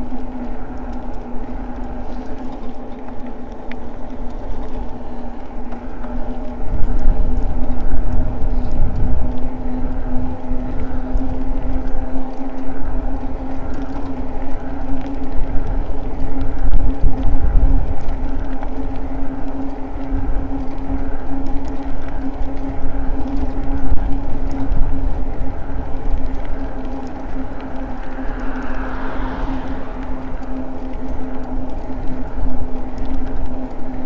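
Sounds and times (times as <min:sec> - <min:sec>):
faint pulse from turning wheels: 0:00.0 - 0:34.0
wind rumbling on microphone: 0:06.6 - 0:13.8, 0:14.6 - 0:18.9, 0:22.8 - 0:32.8.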